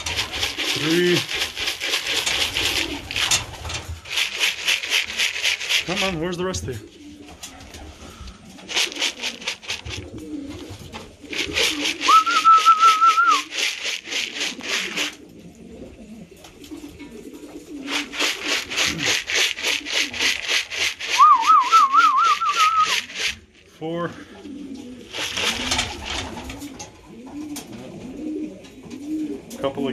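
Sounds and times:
fast rhythmic rattle: 0:00.0 - 0:06.2, 0:08.6 - 0:10.0, 0:11.3 - 0:15.2, 0:17.9 - 0:23.4, 0:25.1 - 0:26.5
pigeons cooing: 0:00.0 - 0:29.9
person whistling: 0:12.0 - 0:13.5, 0:21.1 - 0:23.0.

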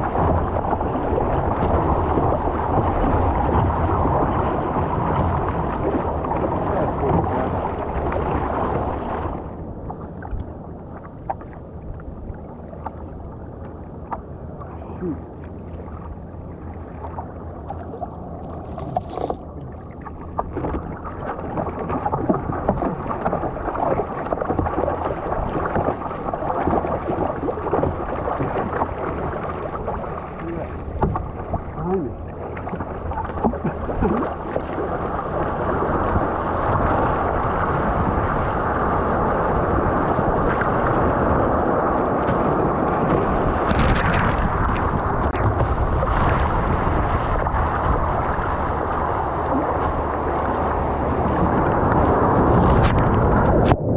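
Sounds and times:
paddle strokes: 0:00.0 - 0:37.5
water splashing against hull: 0:00.0 - 0:53.9.

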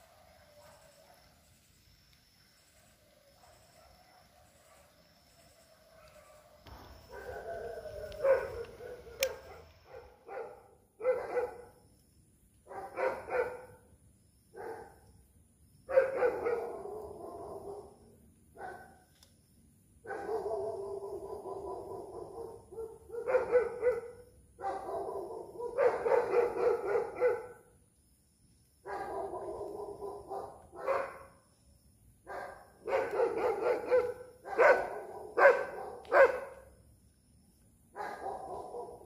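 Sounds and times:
dogs howling: 0:03.2 - 0:10.4, 0:16.2 - 0:18.0, 0:20.2 - 0:24.1
sharp dog barks: 0:08.2 - 0:11.6, 0:20.1 - 0:27.6, 0:32.3 - 0:36.5.

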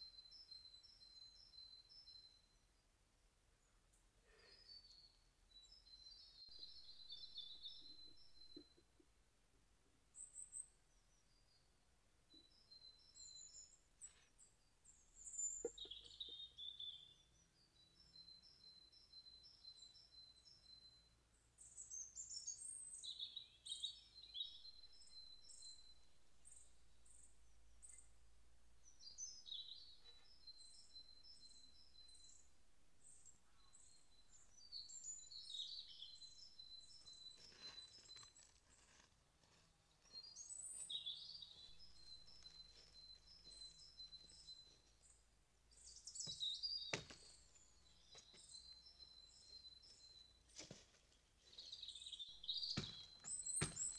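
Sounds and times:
small birds chirping: 0:00.0 - 0:09.4, 0:10.0 - 0:53.9
hatchet chopping branch: 0:52.8 - 0:53.9.

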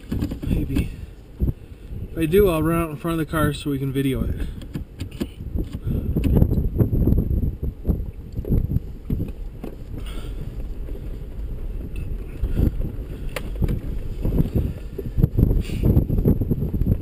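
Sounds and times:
tyres knocking over loose rock: 0:00.0 - 0:00.9
vehicle engine rumbling: 0:00.0 - 0:17.0
wind on microphone: 0:00.0 - 0:17.0.

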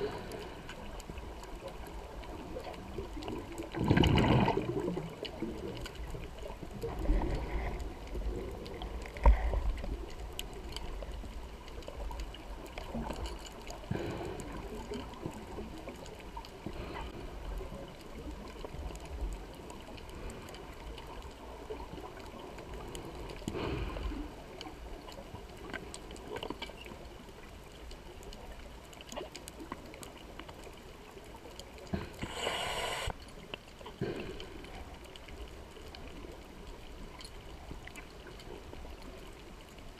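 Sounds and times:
low water rumble: 0:00.0 - 0:39.9
underwater bubbling: 0:00.0 - 0:39.9.

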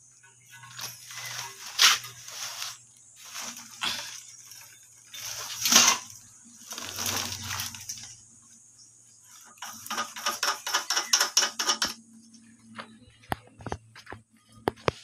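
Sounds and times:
rustling: 0:00.5 - 0:08.2
porcelain bowl scraping on sacks: 0:00.7 - 0:08.1
sharp clicks: 0:09.6 - 0:12.0.

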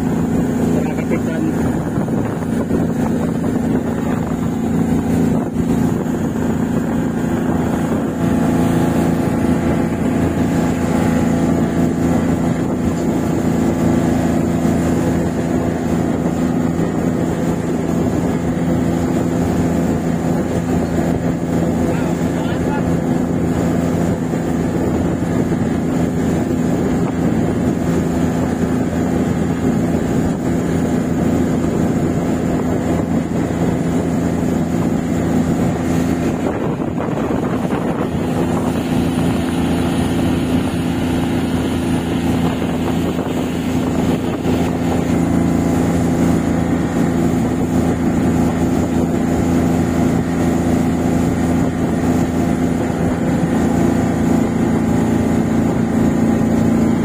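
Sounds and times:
boat engine humming: 0:00.0 - 0:57.0.

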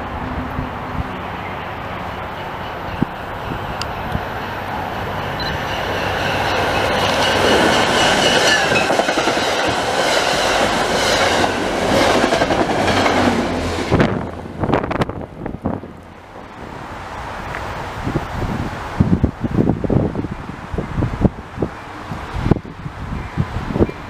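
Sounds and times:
train wheels clattering over rails: 0:03.0 - 0:14.3.

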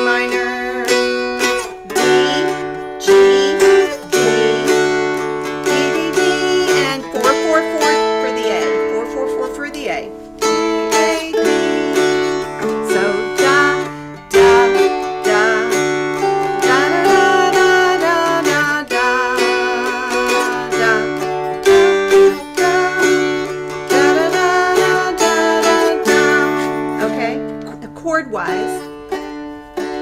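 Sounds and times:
dulcimers strummed: 0:00.0 - 0:30.0.

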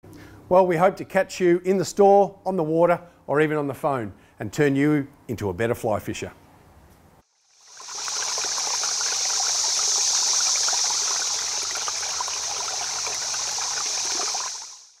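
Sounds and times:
stream water rushing: 0:07.5 - 0:15.0.

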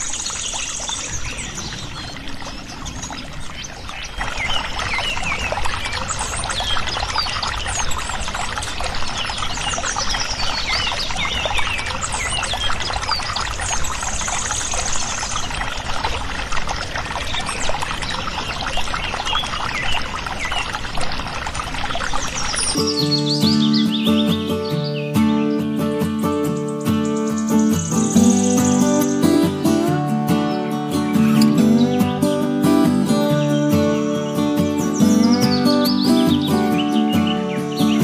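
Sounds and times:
water pouring and splashing on plastic: 0:00.0 - 0:23.0.

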